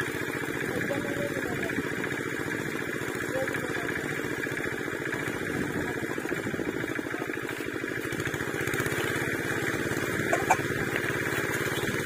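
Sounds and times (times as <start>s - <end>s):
small engine chugging: 0.0s - 12.0s.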